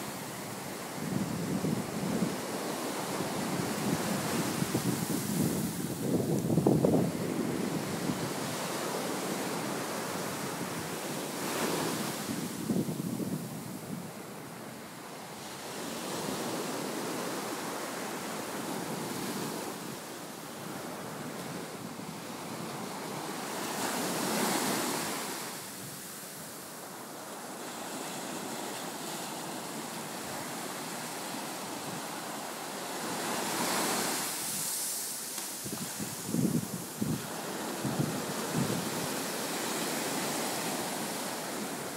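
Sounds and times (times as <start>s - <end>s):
wind on microphone: 0.0s - 14.8s, 33.0s - 41.9s
ocean surf breaking on beach: 0.0s - 41.9s.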